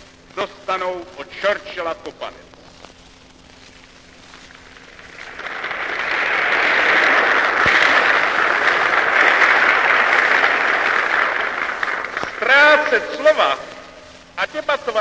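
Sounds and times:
large crowd applauding: 4.6 - 13.8.

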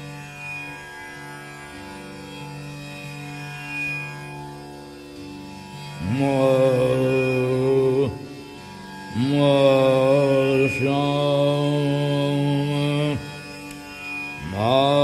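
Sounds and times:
steady drone: 5.1 - 15.0
man singing long held notes: 5.9 - 13.8, 14.4 - 15.0.

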